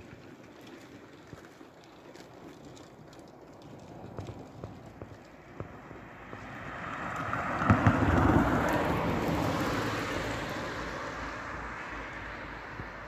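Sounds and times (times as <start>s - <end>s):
vehicle passing close by: 5.4s - 13.0s.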